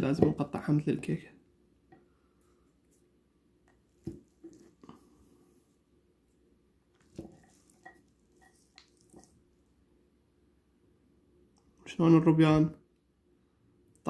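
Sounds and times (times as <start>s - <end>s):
spatula tapping and scraping plate: 7.1s - 9.3s.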